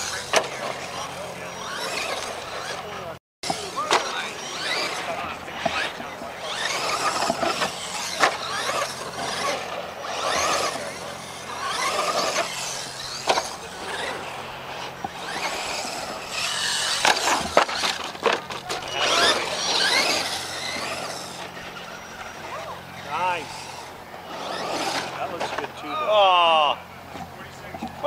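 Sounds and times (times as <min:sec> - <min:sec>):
electric motor whining: 0:00.0 - 0:27.9
toy truck hitting dirt: 0:03.8 - 0:04.8, 0:11.6 - 0:14.1, 0:15.0 - 0:21.4.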